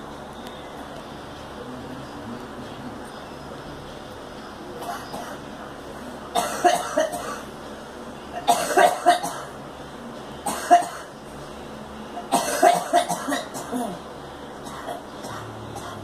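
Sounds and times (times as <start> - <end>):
girl coughing: 6.4 - 7.4, 8.4 - 9.5, 10.5 - 11.1, 12.3 - 14.0.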